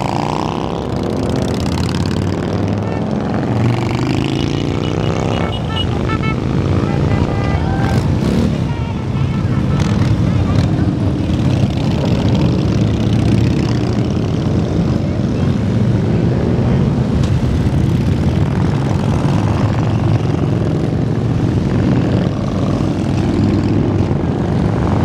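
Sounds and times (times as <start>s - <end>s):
motorcycles riding past: 0.0s - 25.0s.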